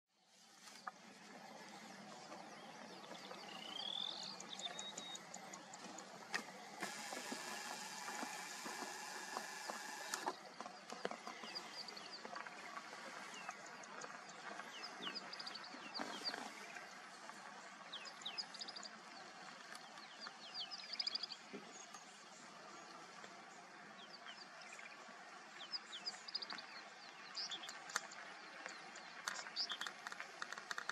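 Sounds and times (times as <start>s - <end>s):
background hiss: 0.2s - 10.4s.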